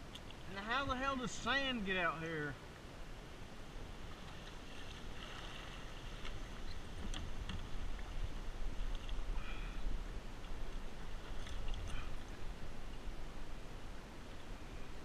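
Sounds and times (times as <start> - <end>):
paddle dipping in water: 3.8 - 14.6
water lapping against hull: 3.9 - 14.8.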